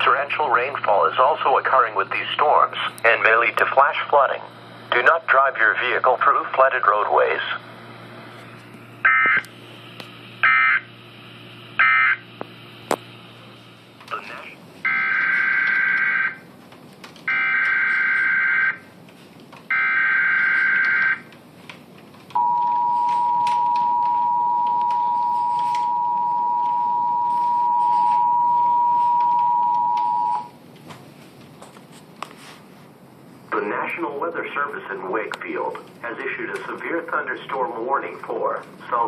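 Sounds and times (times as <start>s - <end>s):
buzzing data bursts: 10.4s - 10.9s, 11.8s - 12.3s
two-tone attention signal: 22.4s - 30.5s.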